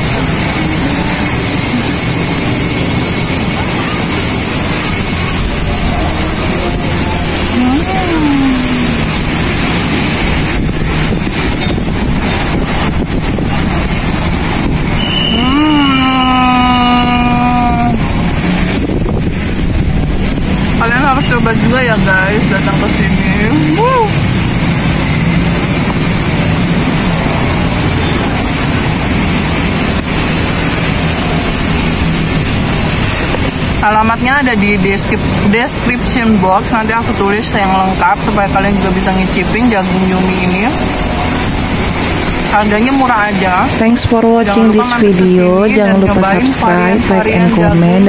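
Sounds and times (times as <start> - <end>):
low engine hum: 0.0 - 48.0
passing vehicles rushing: 0.0 - 48.0
road traffic: 0.0 - 48.0
wind buffeting microphone: 0.0 - 48.0.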